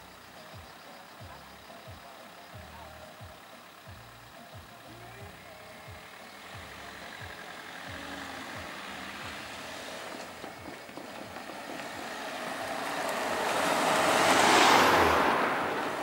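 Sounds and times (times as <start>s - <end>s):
car driving past: 5.7s - 16.0s.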